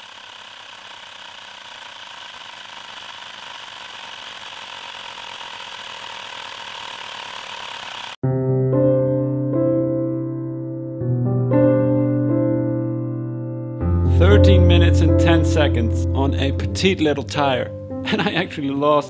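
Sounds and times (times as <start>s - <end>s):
air compressor rattling buzz: 0.0s - 8.2s
piano music: 8.2s - 19.0s.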